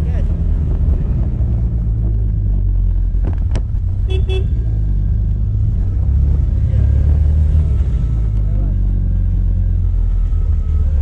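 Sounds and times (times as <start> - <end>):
motorcycle engine and road rumble: 0.0 - 11.0
vehicle horn toots: 4.0 - 4.6.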